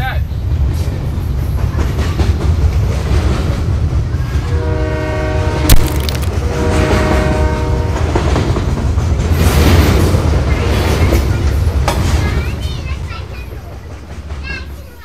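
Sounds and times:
train rumbling past: 0.0s - 15.0s
train horn blasts: 4.4s - 5.7s, 6.4s - 8.4s.

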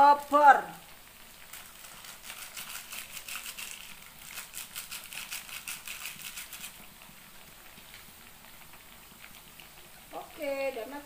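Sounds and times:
plastic sachet crinkling: 1.4s - 6.9s.

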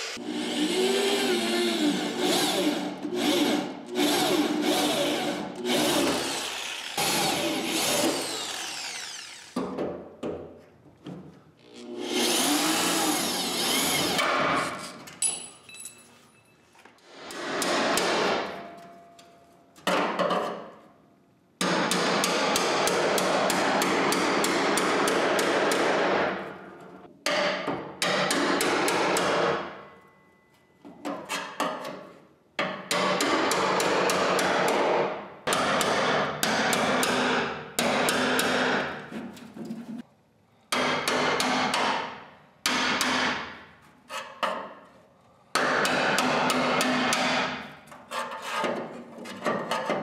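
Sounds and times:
electric drill spinning: 0.0s - 9.6s, 12.0s - 14.2s
chisel hammering on steel: 21.6s - 26.1s, 27.2s - 29.6s, 32.6s - 38.9s, 40.7s - 43.5s, 45.6s - 47.6s.

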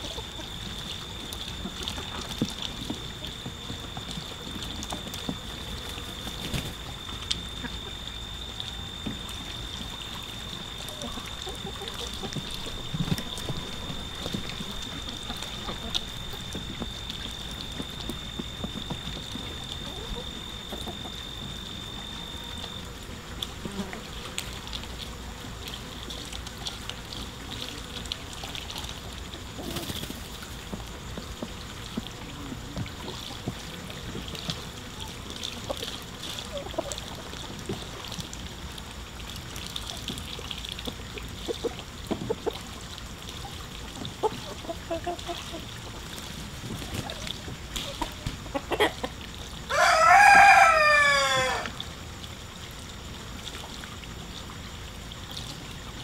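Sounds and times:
hens clucking softly: 0.0s - 22.8s, 25.7s - 38.2s, 41.2s - 51.9s
hens pecking and scratching: 0.0s - 51.8s
rooster crowing: 49.7s - 51.8s.

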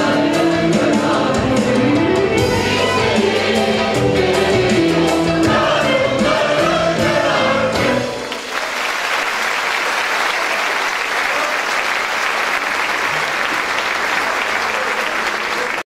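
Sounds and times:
mixed choir singing with ouds: 0.0s - 8.2s
audience applause: 8.2s - 15.9s.

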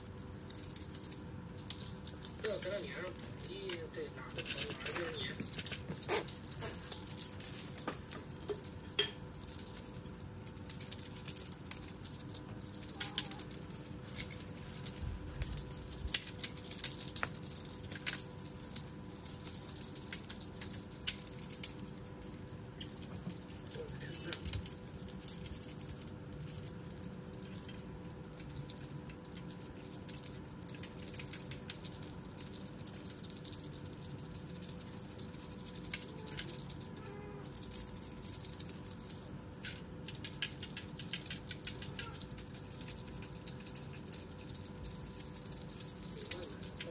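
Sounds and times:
faint steady hum: 0.0s - 46.9s
kittens scampering on leaves: 2.3s - 7.9s.

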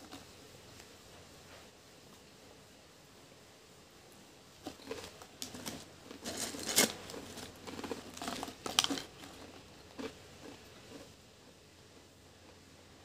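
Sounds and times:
potato chips crunching: 4.7s - 10.6s.

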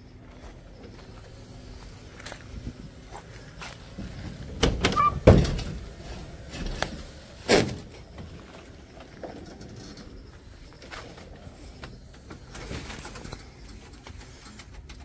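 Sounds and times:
van door shutting: 3.9s - 8.4s
brief squeak: 4.9s - 5.2s.

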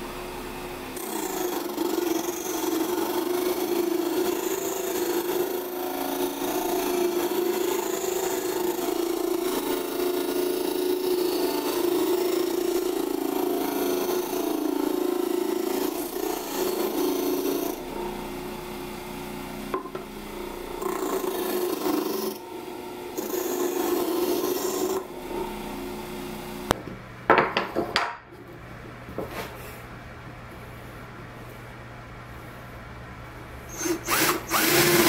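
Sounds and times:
disc sander humming: 0.0s - 27.3s
wood rasping against sanding disc: 1.0s - 18.2s, 23.1s - 25.4s
wooden blocks knocking on workbench: 19.7s - 20.0s, 26.8s - 28.2s.

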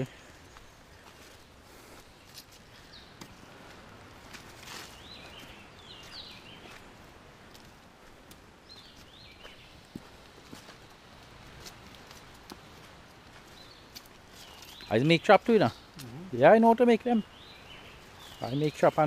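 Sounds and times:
footsteps on dry leaves: 0.0s - 15.0s
bird chirping: 4.8s - 7.0s, 8.6s - 11.0s, 12.5s - 19.0s.

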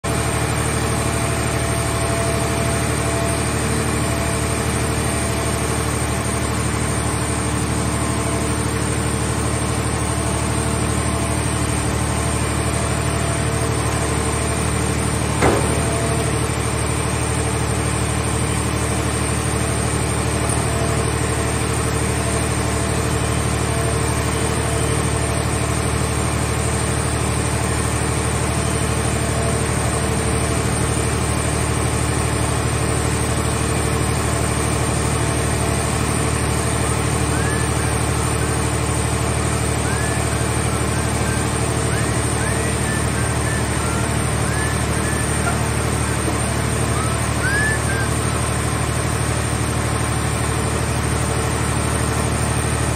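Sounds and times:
baler power unit droning: 0.1s - 52.9s
sharp metal clank: 15.4s - 16.2s.

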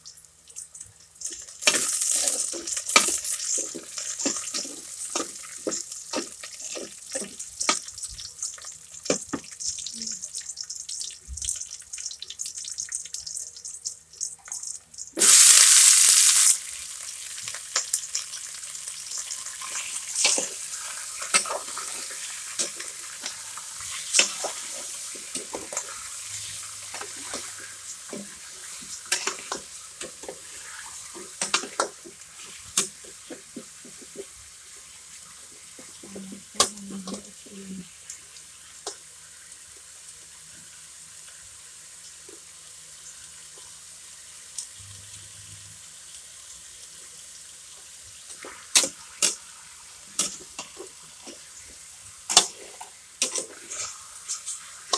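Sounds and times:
chicken sizzling in a pan: 0.0s - 54.9s
utensil scraping against pan: 52.3s - 54.9s.

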